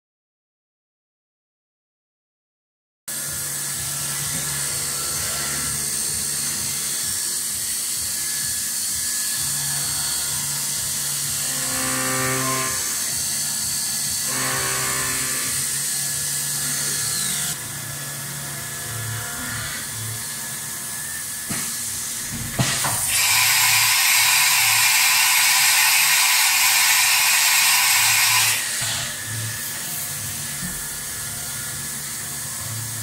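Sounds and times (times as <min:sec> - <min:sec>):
drill ringing cutting metal: 0:03.7 - 0:17.7, 0:23.0 - 0:33.0.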